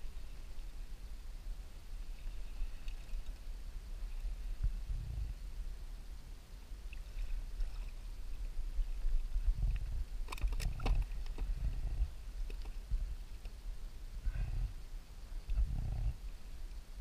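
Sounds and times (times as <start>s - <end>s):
water and wind rumbling: 0.0s - 17.0s
fishing rod clicks and knocks: 10.2s - 11.5s.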